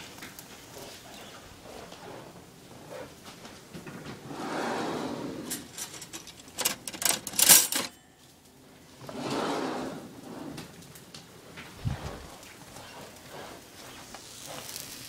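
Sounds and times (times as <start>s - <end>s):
cutlery clattering in a drawer: 4.7s - 8.0s.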